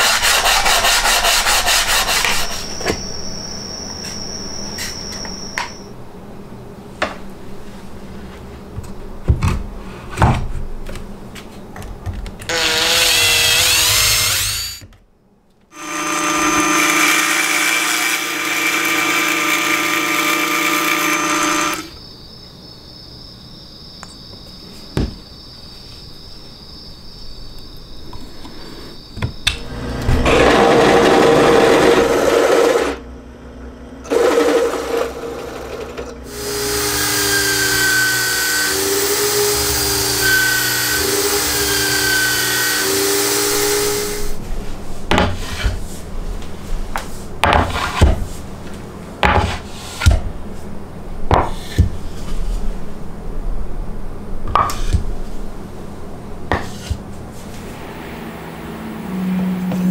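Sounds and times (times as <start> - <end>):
drill boring into plywood: 12.5 - 14.8, 15.8 - 22.0, 34.1 - 44.4
power tool bursts: 12.5 - 14.8, 15.8 - 21.9, 36.3 - 44.4.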